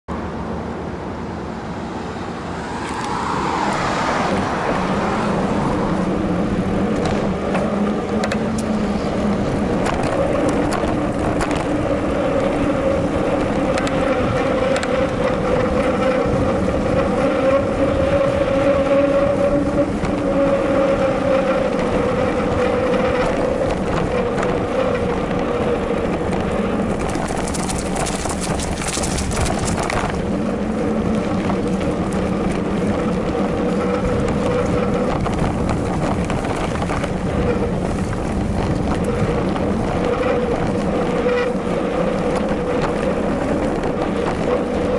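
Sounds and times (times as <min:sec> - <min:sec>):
bike whirring hum: 0:00.1 - 0:44.9
clicks and rattles from bumps: 0:26.3 - 0:30.2.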